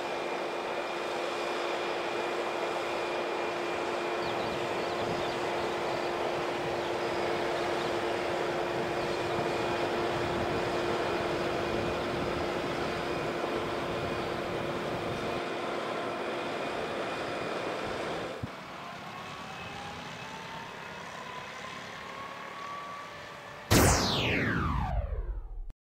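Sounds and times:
slowly rising tone: 23.7s - 25.7s
steady whine: 23.7s - 25.8s.

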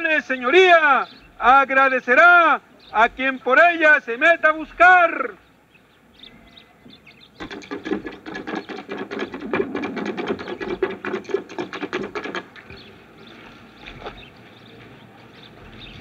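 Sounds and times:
drum roll: 7.4s - 12.5s.

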